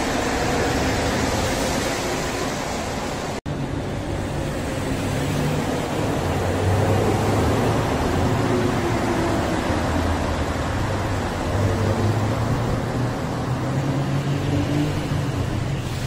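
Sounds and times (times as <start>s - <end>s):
metro train tyres rushing: 0.0s - 16.0s.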